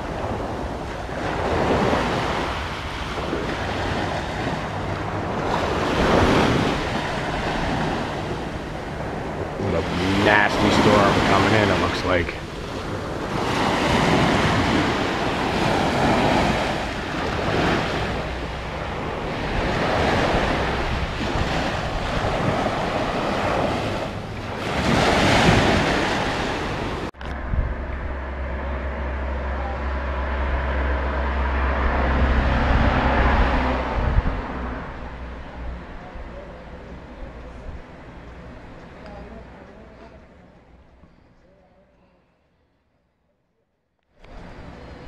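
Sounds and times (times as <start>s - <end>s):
waves breaking on shore: 0.0s - 27.4s
wind buffeting microphone: 0.0s - 38.9s
low rumble and hiss: 33.6s - 43.4s.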